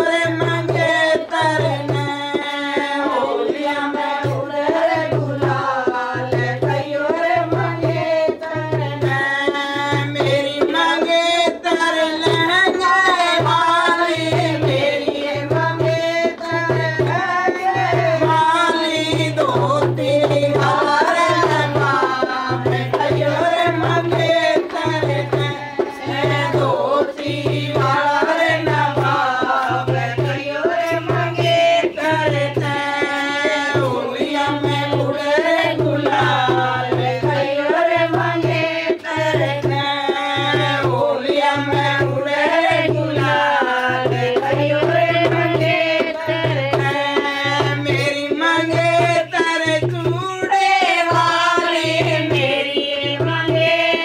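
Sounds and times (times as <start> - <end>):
hand drum: 0.0 - 54.0.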